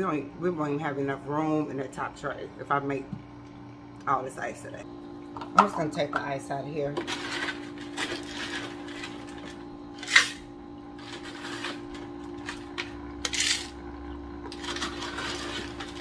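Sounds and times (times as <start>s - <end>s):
steady low hum: 0.0s - 16.0s
ice clattering into tumbler: 7.0s - 10.4s, 14.5s - 16.0s
ice crunching and rattling: 7.0s - 10.4s, 11.0s - 13.8s, 14.5s - 16.0s.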